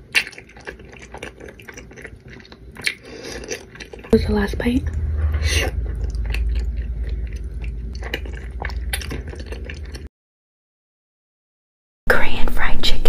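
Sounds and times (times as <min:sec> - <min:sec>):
person chewing crunchy food: 0:00.0 - 0:04.2, 0:05.7 - 0:10.1.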